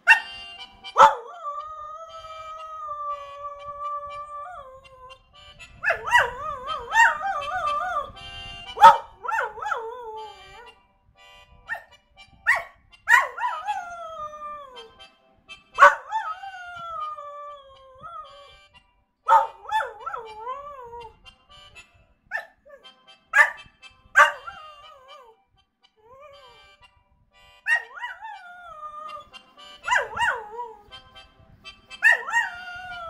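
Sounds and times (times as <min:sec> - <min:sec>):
dog howling: 0:01.0 - 0:05.2, 0:05.8 - 0:08.2, 0:08.8 - 0:10.7, 0:12.5 - 0:14.9, 0:15.8 - 0:18.5, 0:19.3 - 0:21.2, 0:24.2 - 0:25.3, 0:27.7 - 0:31.0, 0:32.0 - 0:33.0.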